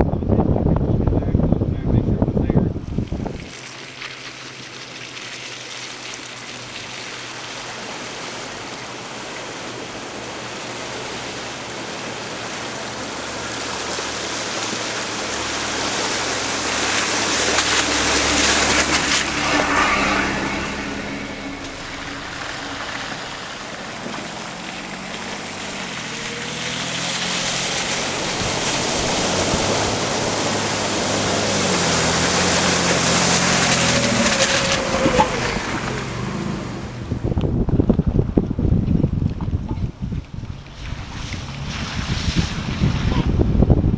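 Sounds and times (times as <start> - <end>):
off-road vehicle engines: 0.0 - 43.9
tyres splashing water: 2.8 - 37.4, 38.0 - 43.9.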